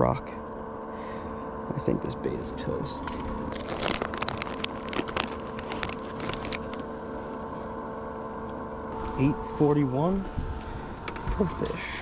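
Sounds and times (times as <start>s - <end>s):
low hum: 0.0s - 12.0s
plastic bag crinkling: 3.0s - 7.0s.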